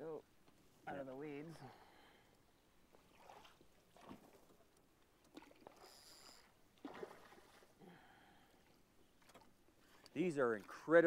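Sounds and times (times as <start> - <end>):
fish thrashing in water: 3.0 - 9.6.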